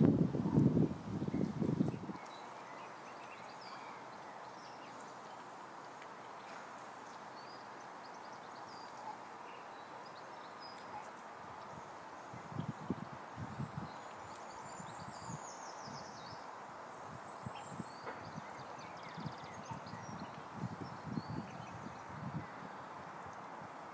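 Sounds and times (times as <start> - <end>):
wind buffeting microphone: 0.0 - 2.5, 11.4 - 16.4, 17.0 - 23.9.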